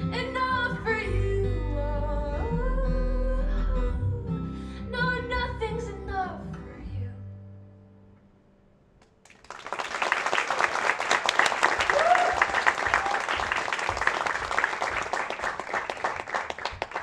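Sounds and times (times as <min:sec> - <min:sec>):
audience clapping: 0:09.2 - 0:17.0
person cheering: 0:11.7 - 0:13.8.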